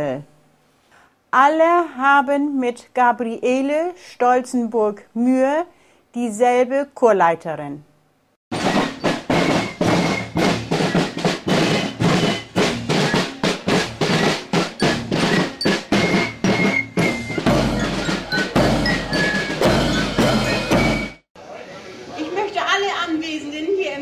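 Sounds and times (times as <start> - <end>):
snare drums: 8.5 - 21.2.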